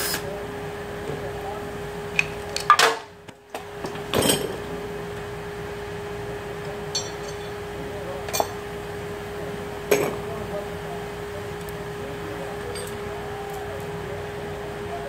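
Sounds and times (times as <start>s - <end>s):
steady hum: 0.0s - 15.0s
metal tools clinking: 6.9s - 7.6s, 12.6s - 13.0s.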